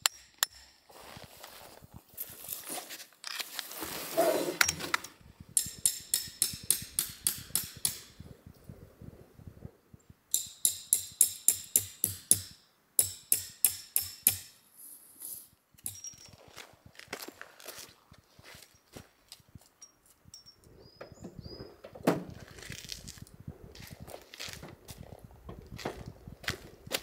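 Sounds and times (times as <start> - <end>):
tarp fabric rustling: 1.3 - 4.6
hammer blows on metal tent peg: 5.6 - 8.3, 10.3 - 14.6.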